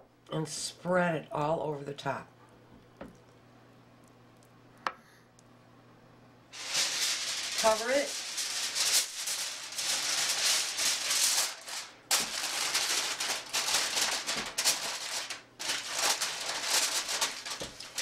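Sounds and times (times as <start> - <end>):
aluminium foil crinkling: 6.6 - 18.0.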